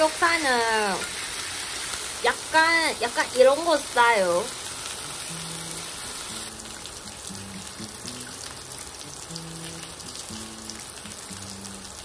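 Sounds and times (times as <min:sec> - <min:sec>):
pork sizzling in a frying pan: 0:00.0 - 0:12.0.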